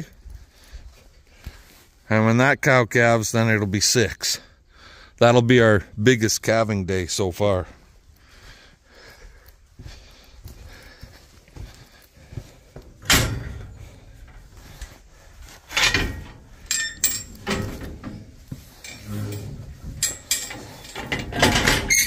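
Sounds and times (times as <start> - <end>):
metal gate knocks and clanks: 12.9 - 14.5, 15.7 - 22.0.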